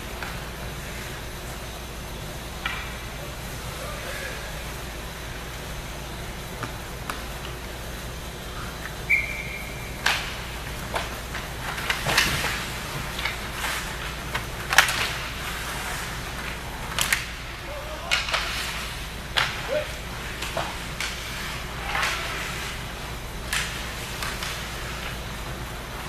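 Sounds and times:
skates and sticks scraping ice: 2.6s - 26.0s
whistle blast: 9.1s - 9.9s.

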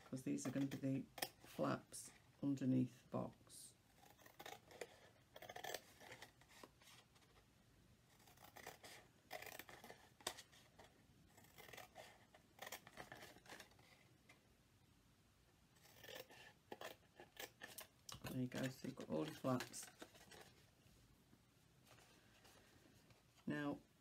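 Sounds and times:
scissors snipping cardstock: 0.2s - 1.4s, 15.9s - 20.5s.

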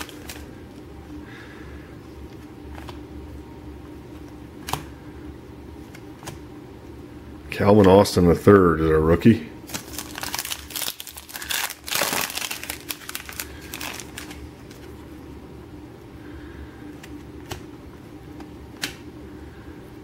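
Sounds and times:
trading cards rustling and scraping: 0.0s - 0.5s, 9.7s - 15.0s.

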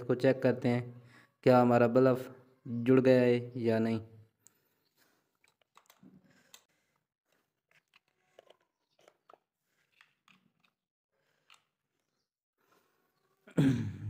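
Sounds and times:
faint clicks and rustles of handling: 4.3s - 13.4s.

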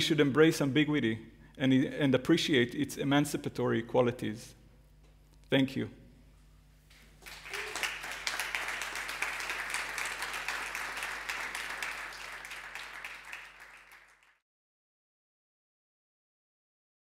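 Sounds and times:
audience applauding: 7.2s - 14.4s.

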